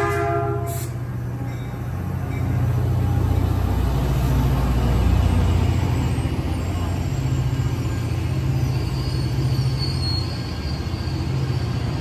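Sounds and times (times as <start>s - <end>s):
train wheels rumbling on rails: 0.0s - 12.0s
high wheel squeal: 5.5s - 12.0s.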